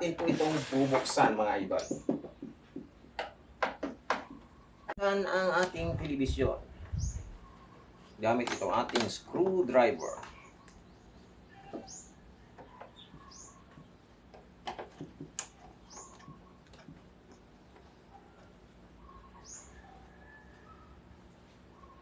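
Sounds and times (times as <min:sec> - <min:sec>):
faint bird chirps: 0:06.8 - 0:08.2, 0:09.9 - 0:14.0, 0:15.8 - 0:16.7, 0:18.0 - 0:22.0.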